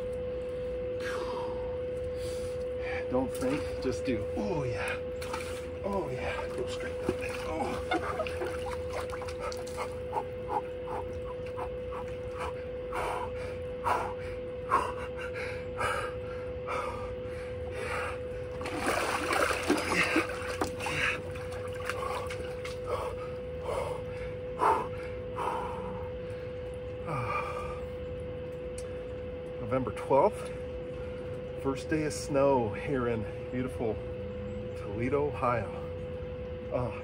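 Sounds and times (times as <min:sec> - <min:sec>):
steady hum: 0:00.0 - 0:37.0
man breathing: 0:01.0 - 0:03.1, 0:11.8 - 0:18.5, 0:22.0 - 0:28.0
water dripping: 0:05.2 - 0:10.0.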